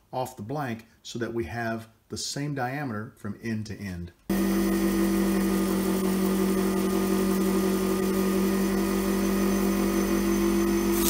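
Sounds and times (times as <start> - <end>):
lathe humming: 4.3 - 11.0.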